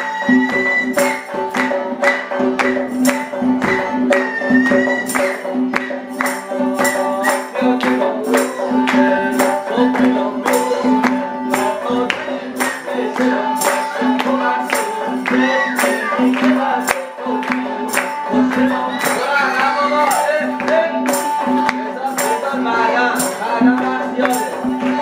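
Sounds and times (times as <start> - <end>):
bowed fiddle melody: 0.0 - 7.3
frame drums with jingles: 0.0 - 25.0
plucked lute: 0.0 - 25.0.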